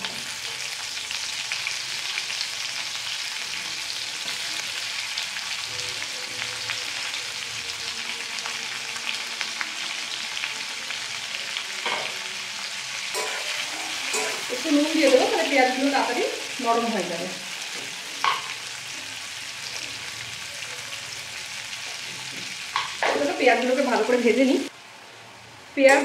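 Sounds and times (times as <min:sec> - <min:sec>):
onions sizzling in oil: 0:00.0 - 0:26.0.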